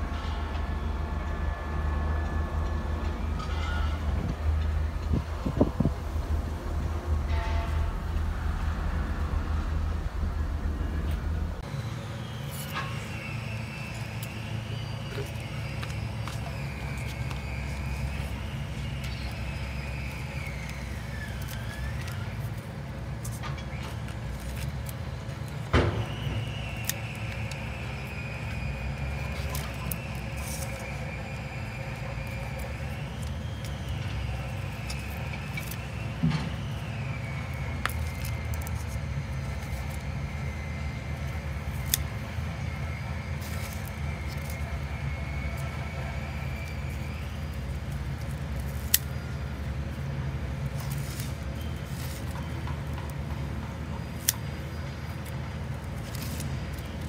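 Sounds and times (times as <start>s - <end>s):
faint high whine: 0.0s - 52.7s
low engine-like rumble: 0.0s - 57.0s
scissors snipping: 41.2s - 42.2s, 47.5s - 49.3s.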